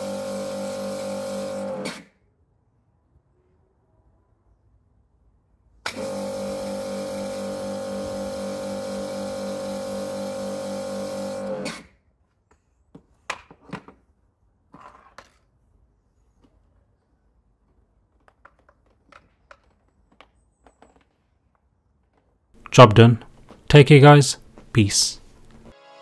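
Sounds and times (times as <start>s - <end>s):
pressure washer running: 0.0s - 1.9s, 5.9s - 11.8s.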